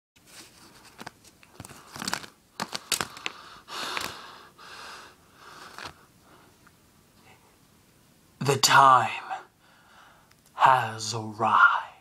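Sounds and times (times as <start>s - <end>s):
rustling and crinkling: 0.2s - 4.3s, 5.6s - 6.1s.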